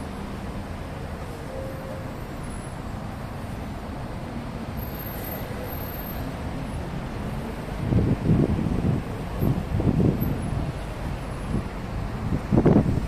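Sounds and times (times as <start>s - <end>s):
highway traffic noise: 0.0s - 13.0s
wind buffeting microphone: 6.8s - 13.0s.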